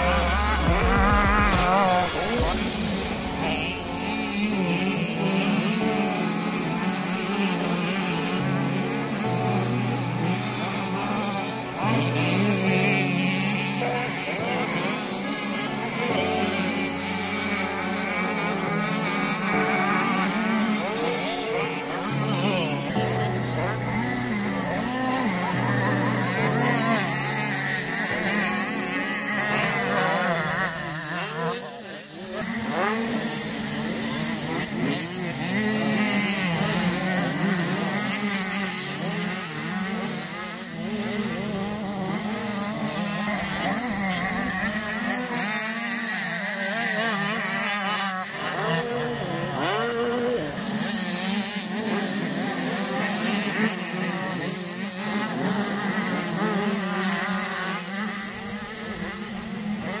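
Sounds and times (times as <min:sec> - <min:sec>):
motocross bike engines revving: 0:00.0 - 1:00.0.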